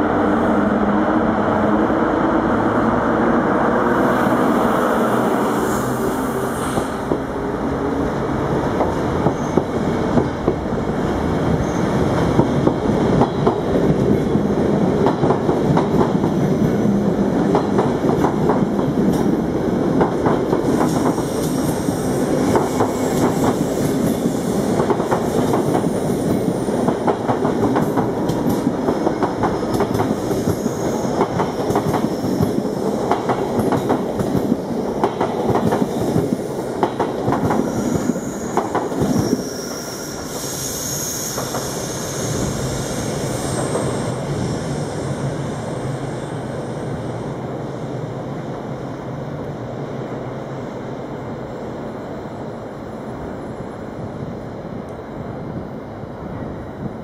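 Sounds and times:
train rumble: 0:00.0 - 0:57.0
train wheels clattering over rails: 0:08.4 - 0:39.8.

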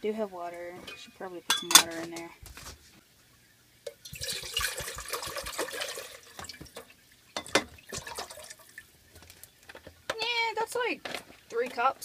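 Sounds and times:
water pouring into metal pot: 0:03.8 - 0:09.8.

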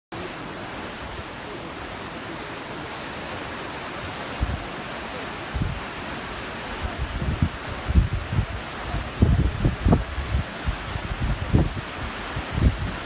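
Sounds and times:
sea surf: 0:00.1 - 0:13.0
wind: 0:00.1 - 0:13.0
wind buffeting microphone: 0:04.1 - 0:04.8, 0:05.4 - 0:05.9, 0:06.8 - 0:13.0.

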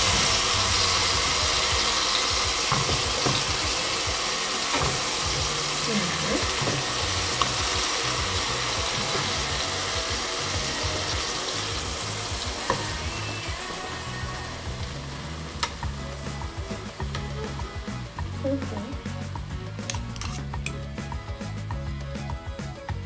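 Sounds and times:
banana slices sizzling in a pan: 0:00.0 - 0:22.8
fork clicking against pan: 0:19.8 - 0:20.8.

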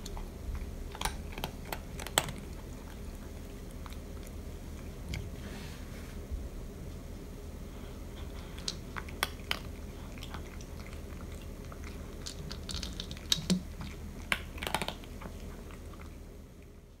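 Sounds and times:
cat crunching dry kibble: 0:00.0 - 0:05.3, 0:08.2 - 0:16.2.

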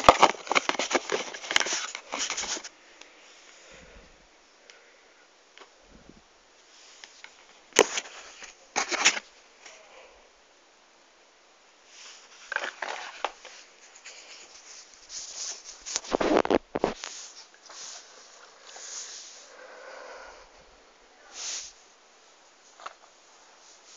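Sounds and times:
rustling and rubbing on fabric: 0:13.4 - 0:19.5.

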